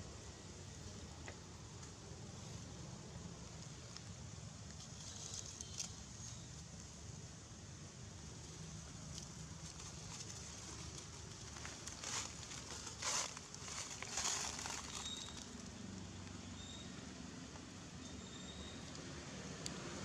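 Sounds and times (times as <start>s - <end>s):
dry leaves crackling and rustling: 3.4s - 7.0s, 8.3s - 16.4s
faint bird chirps: 14.8s - 15.5s, 16.4s - 17.1s, 18.0s - 19.0s.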